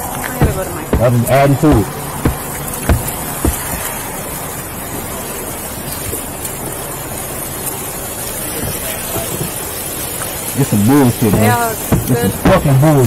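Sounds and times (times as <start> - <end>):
steady rushing noise: 0.0 - 9.0.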